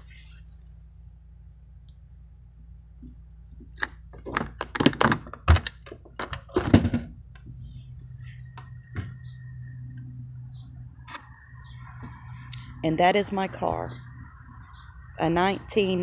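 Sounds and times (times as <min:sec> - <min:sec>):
knocks and clunks: 0:03.6 - 0:07.5, 0:08.4 - 0:09.4
steady low hum: 0:05.3 - 0:16.0.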